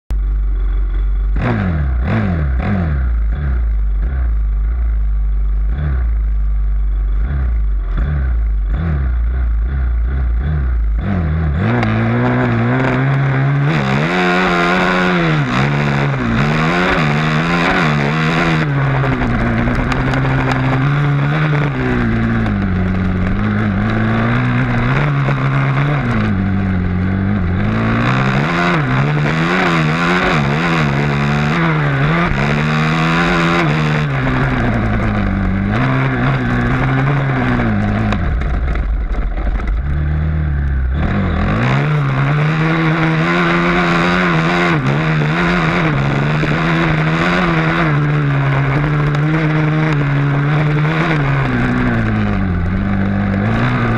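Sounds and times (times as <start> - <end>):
dirt bike engine revving: 0.6 - 53.9
wind rushing over microphone: 11.7 - 53.9.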